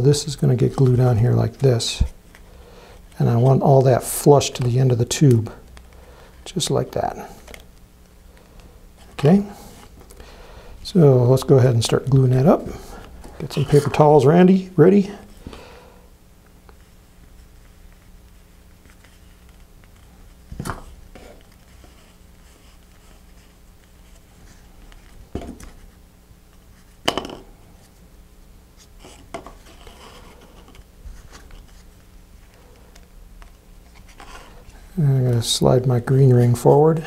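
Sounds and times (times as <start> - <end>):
faint steady hum: 0.0 - 37.0
objects knocking on mat: 27.1 - 27.5.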